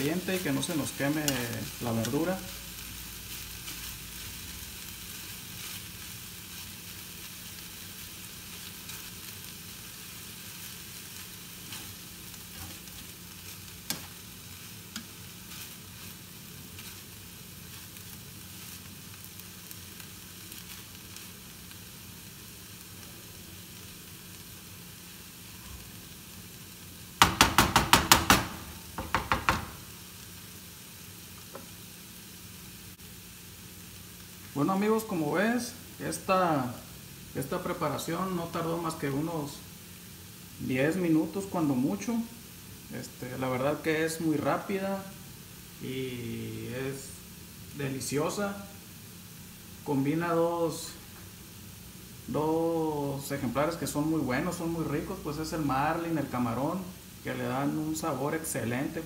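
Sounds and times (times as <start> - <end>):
food sizzling in a frying pan: 0.0 - 59.0
spatula stirring: 10.6 - 19.4
loud sharp knocks: 27.2 - 29.8.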